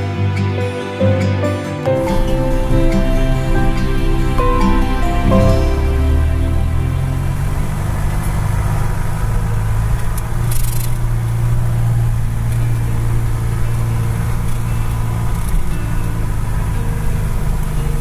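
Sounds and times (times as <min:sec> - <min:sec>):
vehicle engine running: 0:02.0 - 0:18.0.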